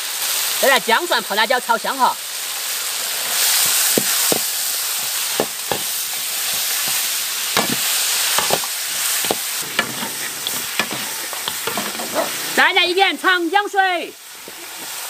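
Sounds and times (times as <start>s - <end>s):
chicken sizzling in hot oil: 0.0s - 15.0s
metal spatula scraping wok: 3.4s - 12.8s.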